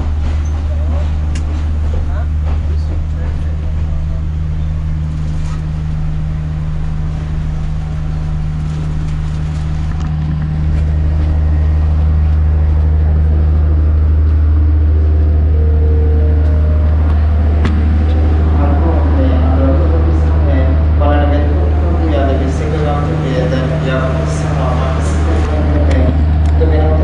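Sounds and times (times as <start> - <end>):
diesel engine idling: 0.0 - 27.0.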